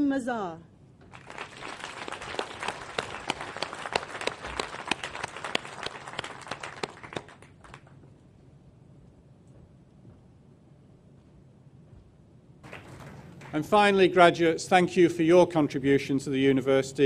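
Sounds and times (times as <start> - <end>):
audience applauding: 1.0 - 8.0, 12.6 - 14.3.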